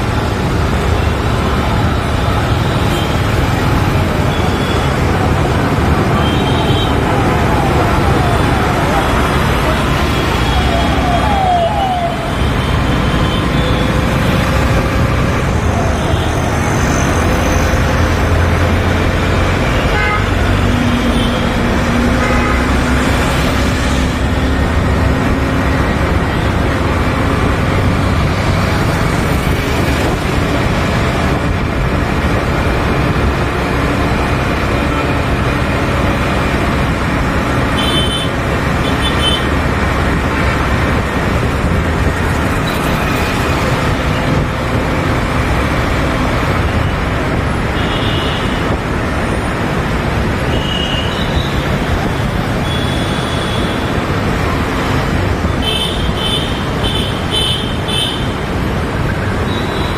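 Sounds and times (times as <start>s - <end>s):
other vehicles passing: 0.0s - 59.9s.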